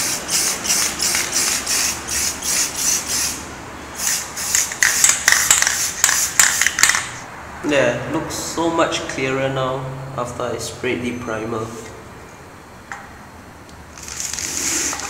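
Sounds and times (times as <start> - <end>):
aerosol can hissing: 0.0 - 3.4, 4.0 - 6.7, 14.0 - 15.0.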